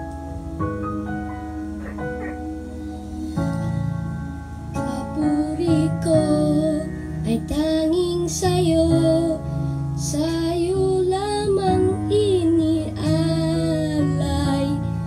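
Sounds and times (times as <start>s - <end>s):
instrumental accompaniment: 0.0s - 8.4s
boy singing: 4.8s - 9.4s, 10.0s - 14.9s.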